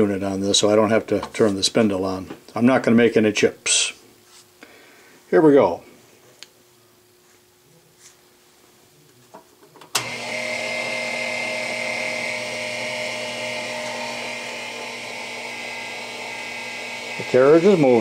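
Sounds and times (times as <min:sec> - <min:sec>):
lathe feed motor humming whine: 0:10.0 - 0:18.0.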